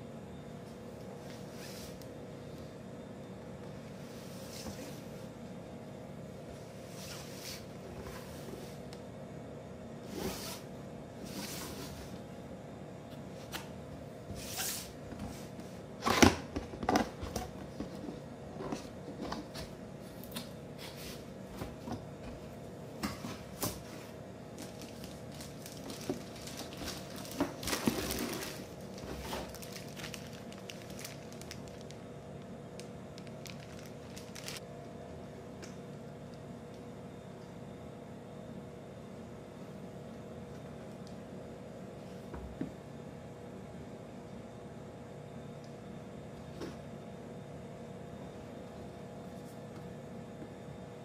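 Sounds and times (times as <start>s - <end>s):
plastic bag crinkling: 24.5s - 34.6s.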